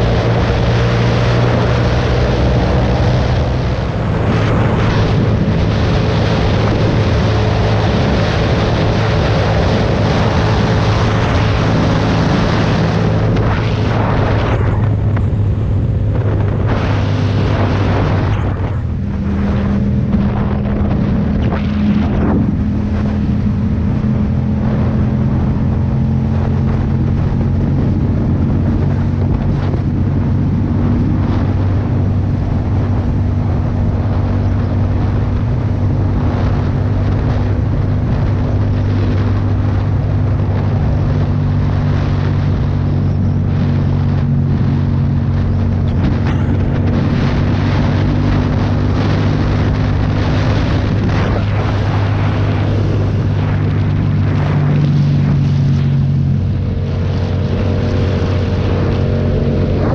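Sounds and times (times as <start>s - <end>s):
motorcycle engine running: 0.0s - 59.9s
wind rush on microphone: 0.0s - 59.9s.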